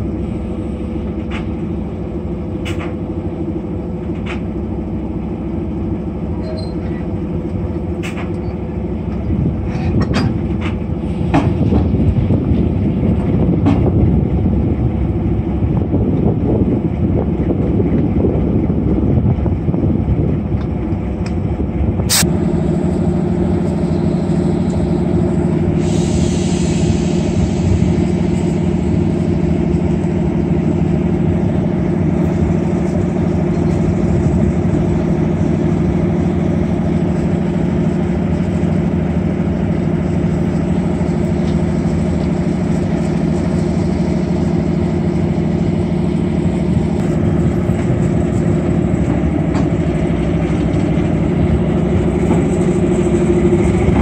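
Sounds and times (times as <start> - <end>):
diesel locomotive engine running: 0.0 - 54.0
air hiss: 22.1 - 22.3, 25.7 - 28.1
wheels clicking on track: 27.1 - 54.0.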